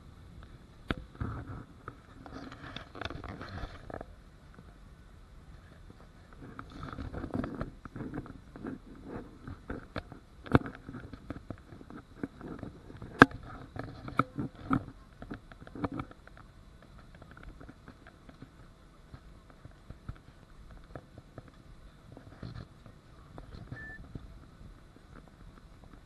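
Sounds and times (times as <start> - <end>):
faint cabin background: 21.0 - 25.8.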